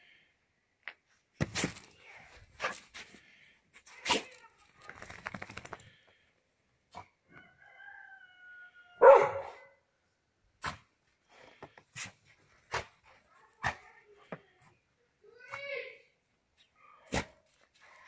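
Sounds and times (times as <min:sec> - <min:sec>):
dog barking: 0:09.0 - 0:09.8.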